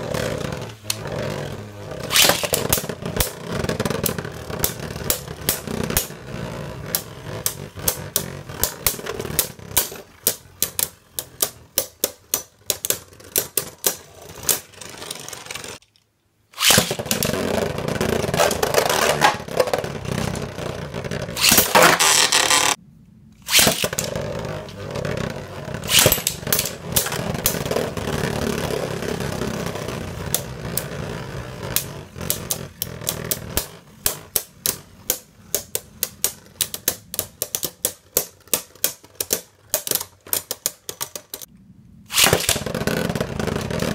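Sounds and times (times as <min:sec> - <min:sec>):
spinning tops clacking: 0:02.0 - 0:03.4.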